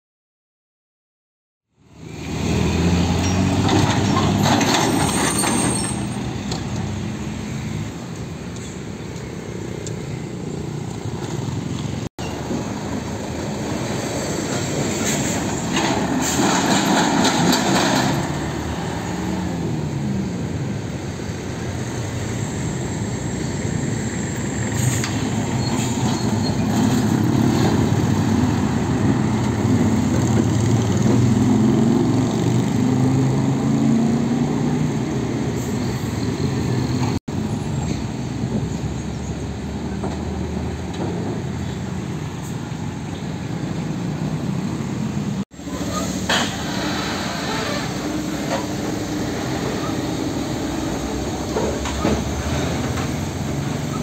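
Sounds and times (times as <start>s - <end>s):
heavy diesel trucks driving: 1.8s - 54.0s
motorcycles passing: 26.8s - 35.6s.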